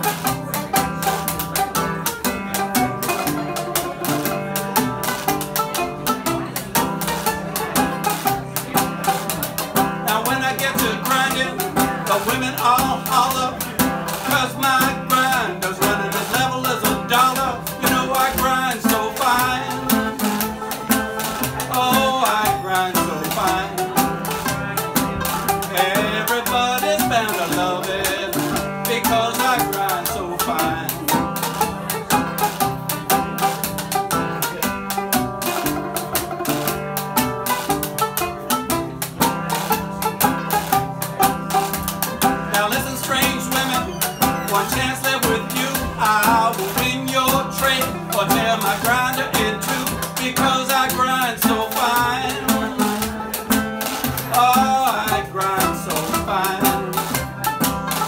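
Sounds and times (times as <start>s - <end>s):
banjo strummed: 0.0s - 58.0s
resonator guitar strummed: 0.0s - 58.0s.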